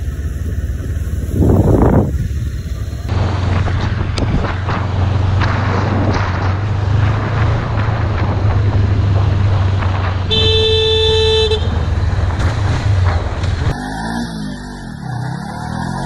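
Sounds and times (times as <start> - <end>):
motorcycle engine running: 0.0 - 13.8
road and wind noise: 0.0 - 16.0
vehicle horn: 10.3 - 11.9.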